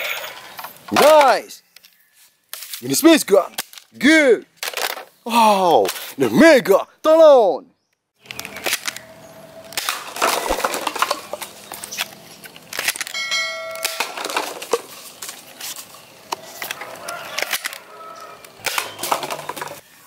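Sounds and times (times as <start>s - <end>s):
plastic cups clattering down: 4.6s - 5.1s, 9.8s - 11.6s, 13.7s - 15.3s, 18.6s - 19.8s
bell-like chime: 13.2s - 14.0s.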